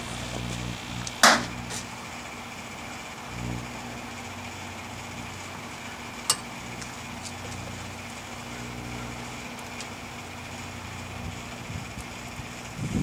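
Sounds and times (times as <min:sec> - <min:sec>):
microwave oven humming: 0:00.0 - 0:13.0.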